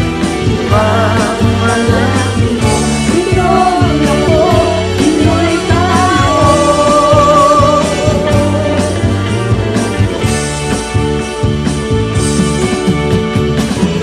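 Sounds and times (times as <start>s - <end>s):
pop-rock band music: 0.0s - 14.0s
person singing: 0.5s - 9.4s.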